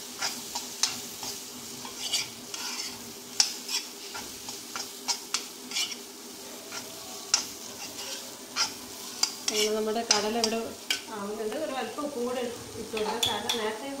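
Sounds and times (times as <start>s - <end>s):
low steady sizzle: 0.0s - 14.0s
metal spoon scraping iron pan: 0.2s - 6.0s, 6.7s - 11.1s.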